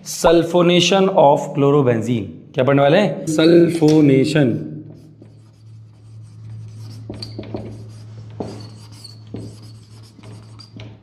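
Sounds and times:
steady low hum: 2.2 - 10.8
marker squeaking on whiteboard: 4.9 - 11.0.

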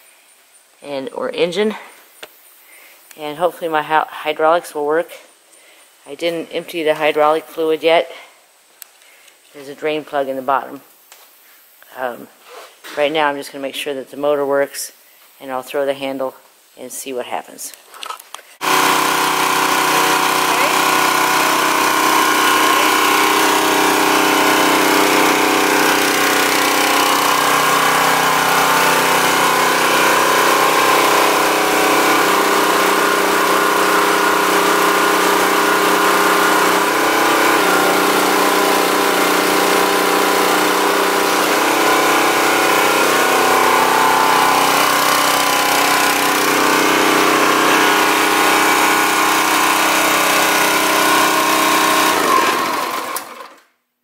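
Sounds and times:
small engine running steadily: 18.6 - 53.6.

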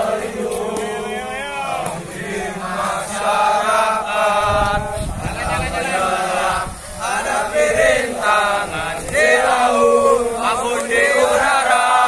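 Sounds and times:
young men chanting in unison: 0.0 - 12.0.

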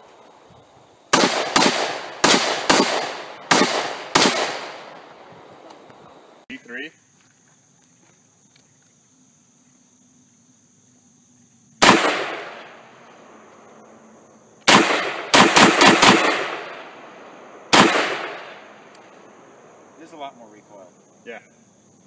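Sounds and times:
rifle shots echoing: 1.1 - 5.3, 11.8 - 13.0, 14.7 - 19.4.

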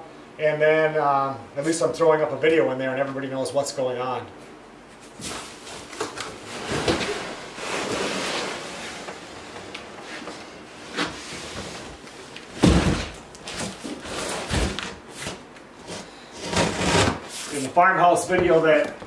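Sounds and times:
cardboard box scraping and rustling: 6.4 - 9.2
box thudding on floor: 12.6 - 13.2.

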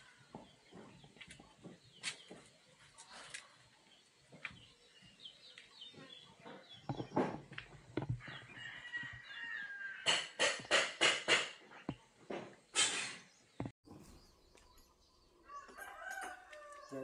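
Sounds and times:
rooster crowing: 8.2 - 10.3, 15.4 - 17.0
sharp knocks: 10.0 - 11.6.

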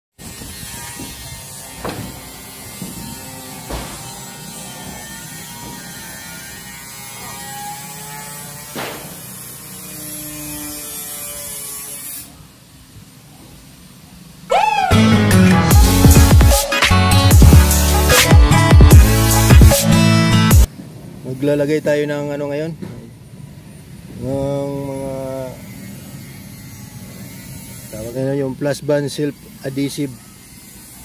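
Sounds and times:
footsteps on metal roof: 0.9 - 6.0, 8.7 - 9.4
loud electronic music: 14.5 - 20.7.

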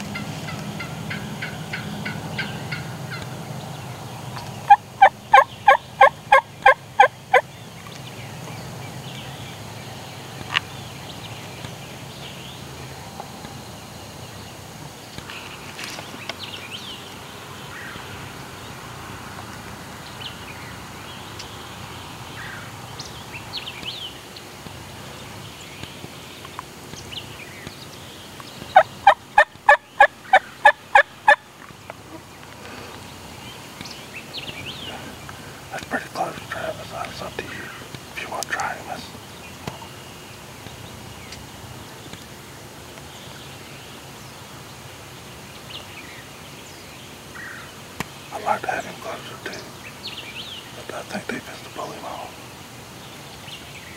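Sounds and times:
wild turkey yelping: 0.1 - 3.3, 4.6 - 7.4, 28.8 - 31.4
faint songbird chirps: 0.2 - 18.8, 20.0 - 53.9.

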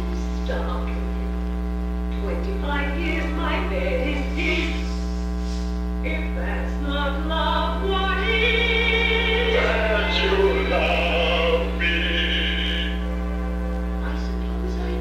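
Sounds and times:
electrical mains hum: 0.0 - 15.0
woman singing with orchestra: 6.2 - 12.8.

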